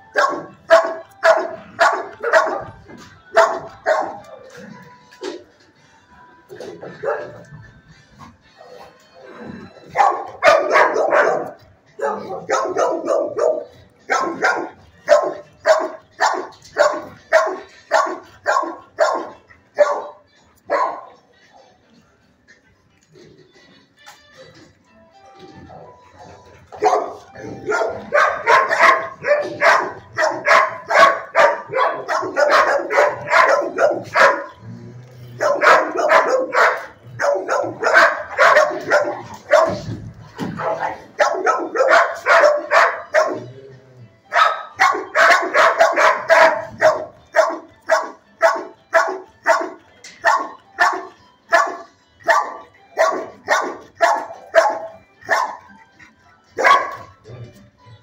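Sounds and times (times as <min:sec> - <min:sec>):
dog barking: 0:00.1 - 0:04.3, 0:06.8 - 0:07.5, 0:09.9 - 0:21.2, 0:26.2 - 0:34.6, 0:35.4 - 0:43.5, 0:44.3 - 0:55.8, 0:56.6 - 0:57.2.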